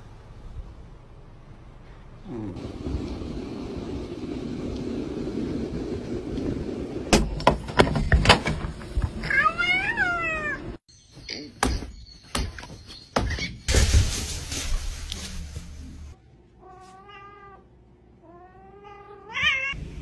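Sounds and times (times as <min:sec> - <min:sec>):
cat meowing: 0:09.3 - 0:10.7, 0:16.6 - 0:19.8.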